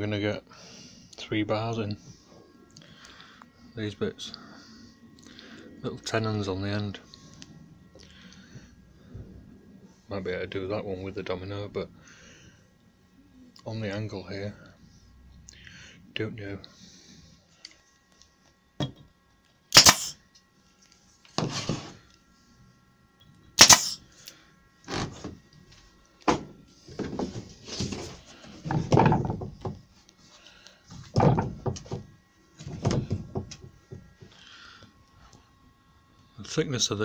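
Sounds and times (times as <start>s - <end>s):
scraping and shuffling: 21.1s - 22.0s, 25.0s - 34.3s
wooden jig knocking on workbench: 31.1s - 32.1s.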